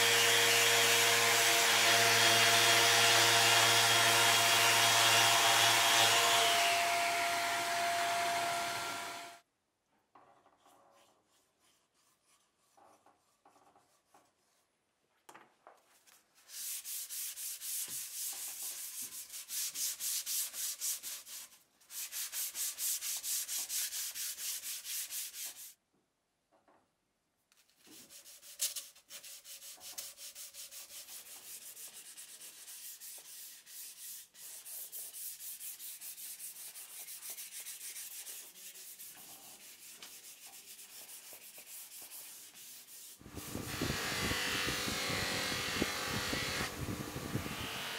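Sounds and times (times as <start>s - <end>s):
sandpaper rubbing on wood: 11.0s - 14.6s, 16.4s - 25.8s, 27.8s - 47.8s.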